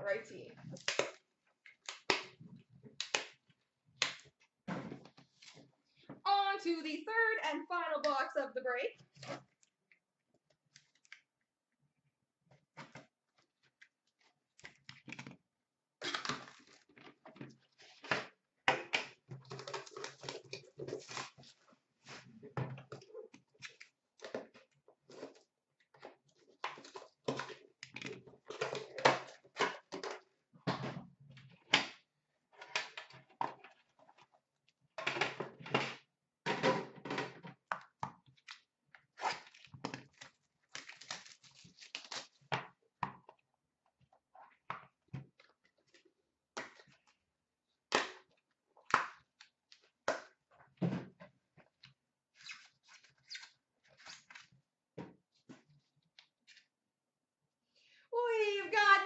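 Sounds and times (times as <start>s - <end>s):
cards and packaging rustling: 38.2s - 42.5s, 51.7s - 54.6s.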